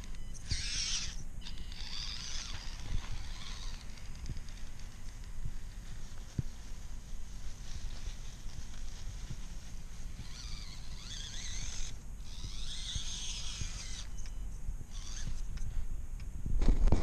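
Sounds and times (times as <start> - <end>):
toy car electric motor whining: 0.0 - 5.0, 10.2 - 14.2, 14.9 - 15.4.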